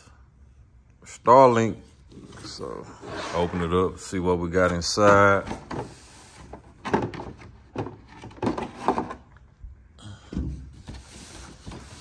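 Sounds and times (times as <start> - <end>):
hiss of sliding packaging: 10.9 - 12.0.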